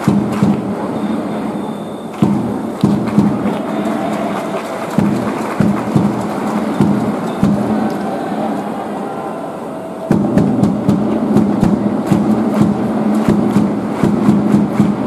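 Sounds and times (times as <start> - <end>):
fast regular claps or drumbeats: 0.0 - 0.8, 2.2 - 8.0, 10.1 - 15.0
crowd noise: 0.0 - 15.0.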